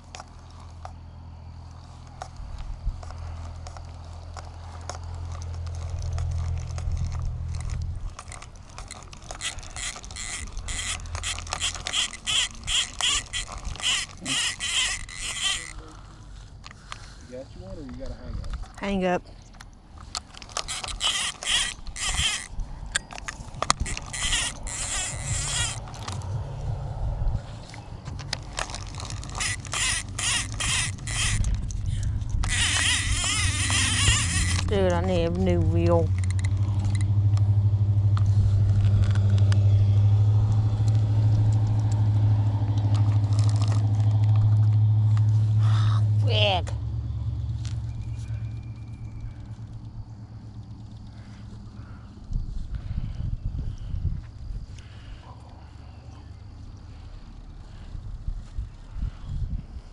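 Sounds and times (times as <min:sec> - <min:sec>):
handling noise: 0:01.7 - 0:17.2, 0:17.8 - 0:45.4
rapid rhythmic scraping clicks: 0:03.0 - 0:18.9, 0:19.5 - 0:26.4, 0:27.6 - 0:37.5
fishing reel cranking: 0:04.6 - 0:17.0, 0:20.1 - 0:26.3, 0:28.2 - 0:42.2, 0:42.8 - 0:44.6.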